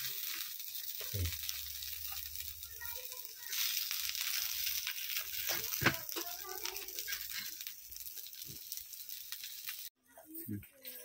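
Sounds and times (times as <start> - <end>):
food sizzling in a pan: 0.0 - 11.0
metal spatula scraping a pan: 3.5 - 9.9.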